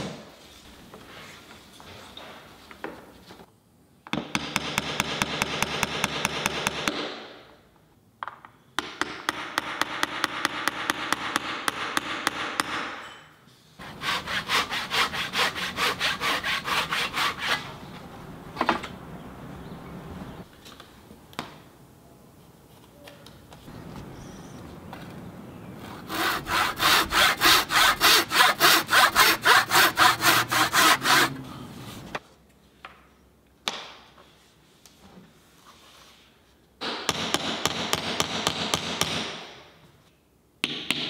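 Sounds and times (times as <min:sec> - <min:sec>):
handsaw cutting wood: 0:13.8 - 0:17.7, 0:25.9 - 0:31.5.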